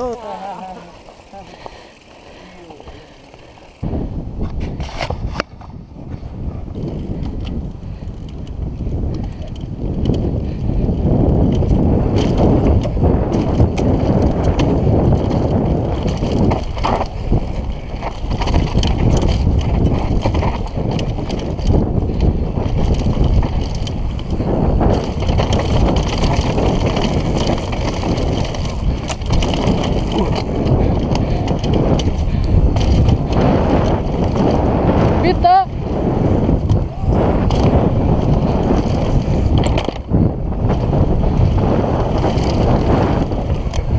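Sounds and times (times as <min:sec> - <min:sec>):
tyre noise: 0:00.0 - 0:07.4, 0:08.8 - 0:43.9
wind buffeting microphone: 0:00.0 - 0:43.9
bike knocks and rattles: 0:08.2 - 0:35.0, 0:36.2 - 0:43.9.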